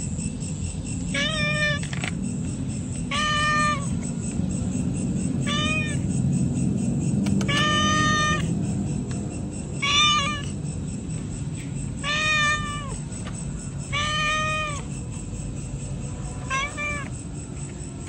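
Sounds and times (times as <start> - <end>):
cat meowing: 1.1 - 1.9, 3.0 - 4.0, 5.4 - 6.1, 7.4 - 8.6, 9.8 - 10.6, 12.0 - 13.0, 13.9 - 14.9, 16.4 - 17.2.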